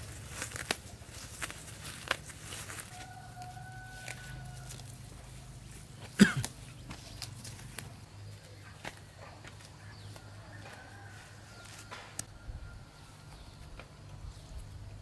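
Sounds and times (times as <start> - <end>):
weeds being pulled up: 0.0 - 12.3
rooster crowing: 2.6 - 5.2, 10.0 - 13.5.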